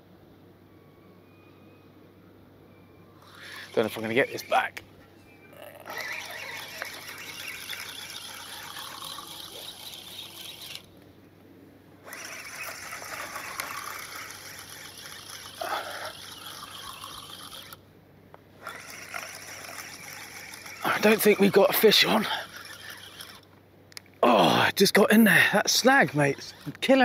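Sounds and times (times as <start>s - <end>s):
fishing reel squealing whir: 3.2s - 4.8s, 5.4s - 11.0s, 12.0s - 17.8s, 18.6s - 23.6s, 24.3s - 27.0s.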